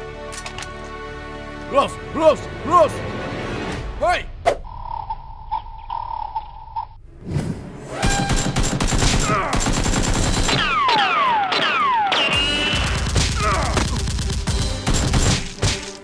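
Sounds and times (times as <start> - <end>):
automatic gunfire bursts: 8.4 - 10.7.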